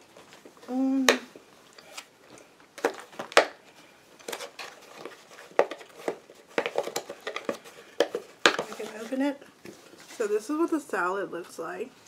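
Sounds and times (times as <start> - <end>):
plastic container clicking and crinkling: 4.2 - 8.9.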